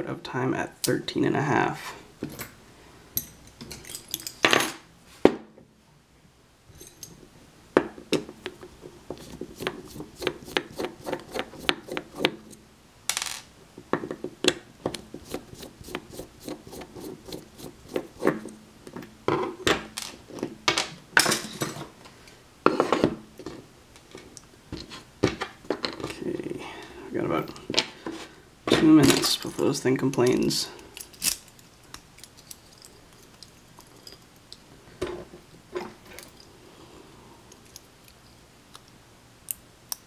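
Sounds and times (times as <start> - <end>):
metal lock parts clicking: 31.0 - 34.3.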